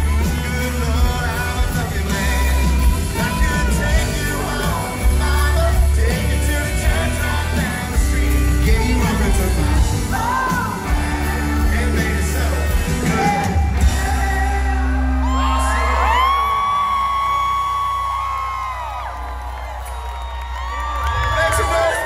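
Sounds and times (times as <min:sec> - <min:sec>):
man singing: 0:00.0 - 0:16.3
country band playing: 0:00.0 - 0:22.0
people whooping: 0:14.8 - 0:22.0.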